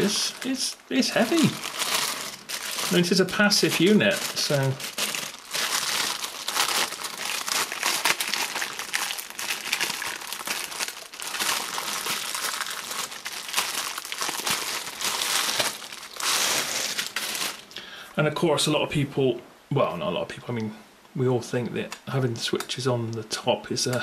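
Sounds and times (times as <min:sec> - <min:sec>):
plastic bag crinkling: 0:00.0 - 0:17.8.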